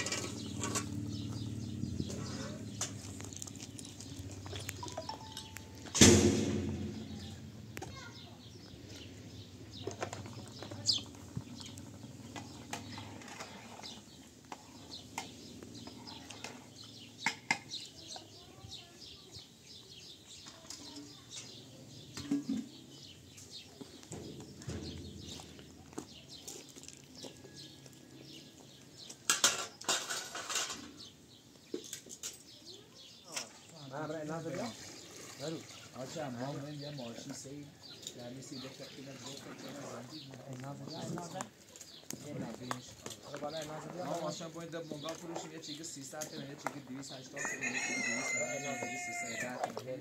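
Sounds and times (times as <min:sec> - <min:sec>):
dishes and utensils clinking: 0:04.6 - 0:05.9.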